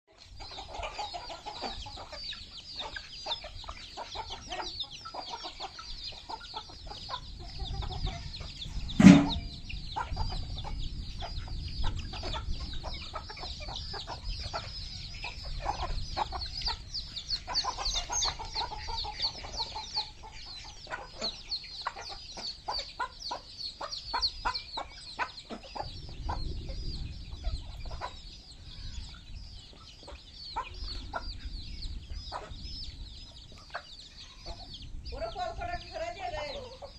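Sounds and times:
chicks peeping: 0.1 - 36.9
hen clucking: 0.1 - 36.9
sudden loud sound: 9.0 - 9.6.

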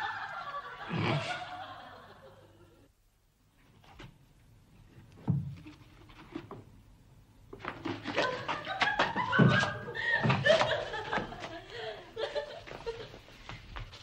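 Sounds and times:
people laughing: 0.0 - 2.9, 8.0 - 13.2.

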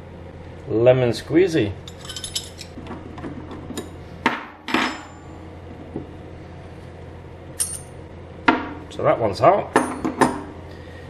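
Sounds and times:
metal tools knocking on workbench: 9.8 - 10.5.

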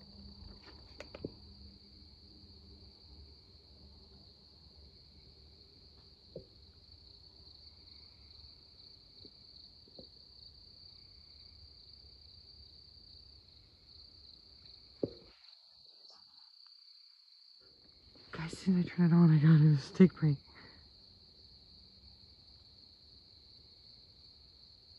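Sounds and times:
crickets chirping: 0.0 - 24.9
faint knocks: 15.0 - 15.4.

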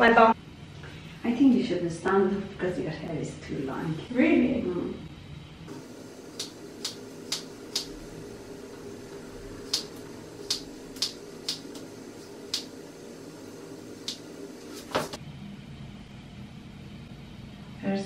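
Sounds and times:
scissors snipping wet hair: 6.4 - 8.0, 9.6 - 11.9, 14.0 - 14.2.

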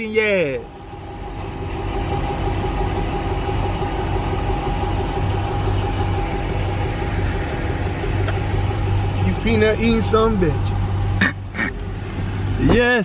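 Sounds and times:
pickup truck engine idling: 0.0 - 13.0.

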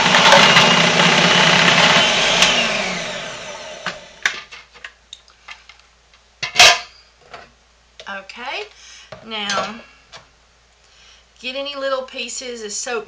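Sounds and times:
food processor motor spinning down: 0.0 - 4.2.

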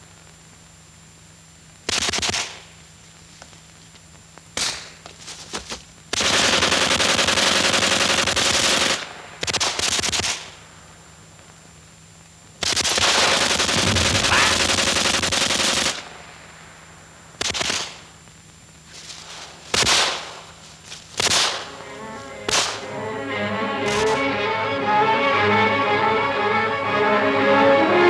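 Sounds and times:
faint steady hum: 0.0 - 28.0
machine-gun fire: 1.9 - 2.7, 6.1 - 10.6, 12.6 - 16.3, 17.4 - 18.1, 19.7 - 20.5, 21.2 - 21.7, 22.5 - 22.8.

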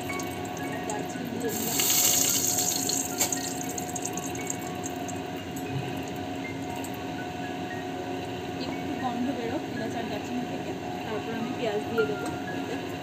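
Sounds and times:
spices sizzling in hot oil: 0.0 - 5.4.

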